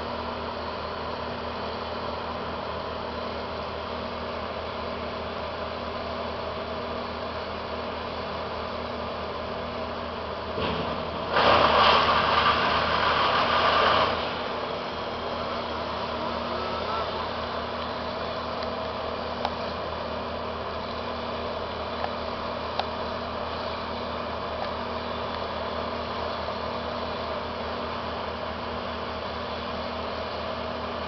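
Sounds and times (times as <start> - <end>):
engine idling: 0.0 - 31.0
loud burst of machine noise: 10.6 - 17.5.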